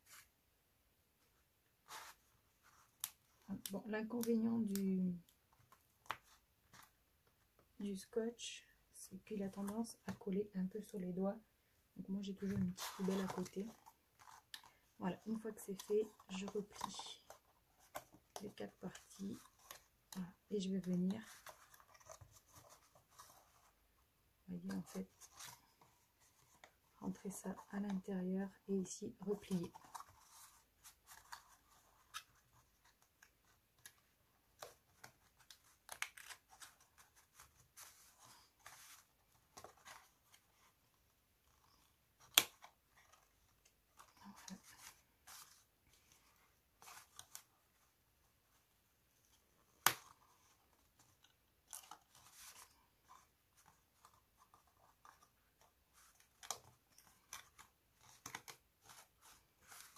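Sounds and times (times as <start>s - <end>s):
cardstock rustling and crinkling: 1.2s - 8.5s, 12.0s - 59.9s.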